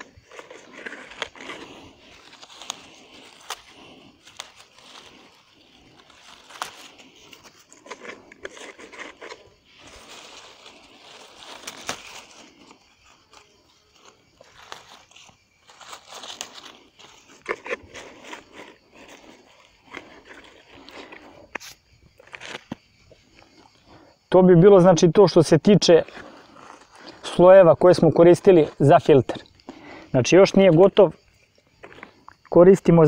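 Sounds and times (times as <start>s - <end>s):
leaves rustling and crunching: 0.0s - 21.4s.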